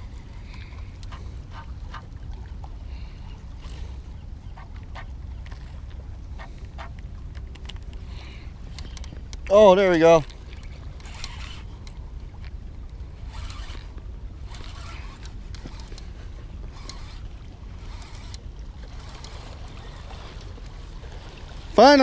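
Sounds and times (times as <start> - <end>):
fishing reel cranking: 7.6 - 20.9.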